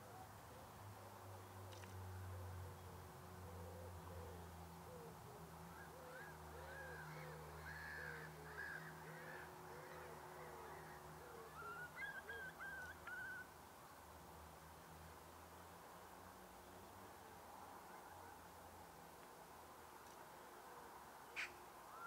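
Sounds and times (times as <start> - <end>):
bird calls: 1.6 - 13.5, 21.3 - 22.0.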